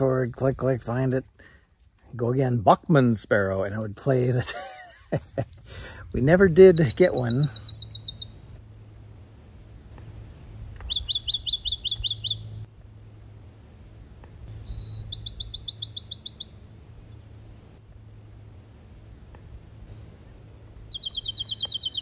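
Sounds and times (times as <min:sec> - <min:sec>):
sparrow singing: 0:06.2 - 0:22.0.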